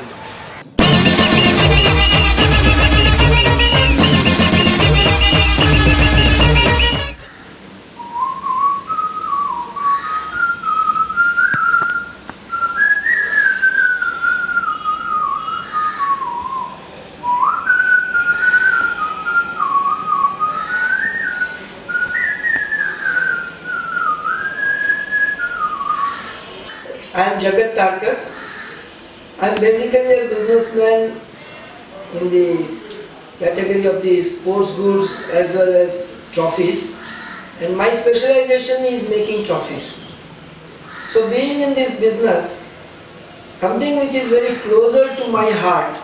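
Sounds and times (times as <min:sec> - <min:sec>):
music: 0:00.8 - 0:07.2
man whistling a melody: 0:08.0 - 0:26.1.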